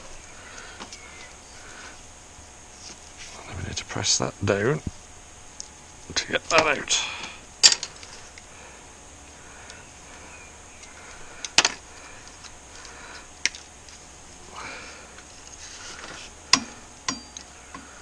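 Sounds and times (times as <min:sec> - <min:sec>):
soft rustle: 0:02.7 - 0:03.5, 0:07.9 - 0:16.4.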